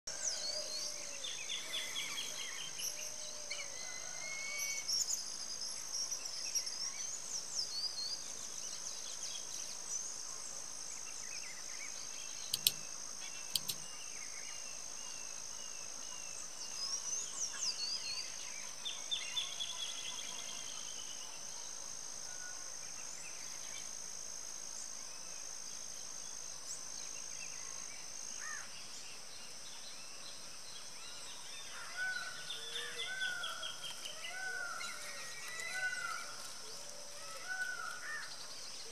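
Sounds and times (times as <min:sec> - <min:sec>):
insect drone: 0:00.1 - 0:38.9
small birds chirping: 0:04.8 - 0:21.4
sharp clicks: 0:12.4 - 0:13.9.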